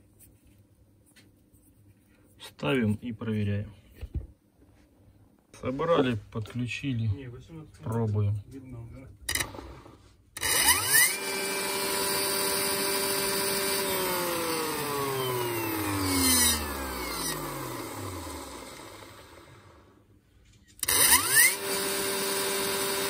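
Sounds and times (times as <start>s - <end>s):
electric motor spinning and winding down: 9.3s - 20.0s, 20.8s - 23.0s.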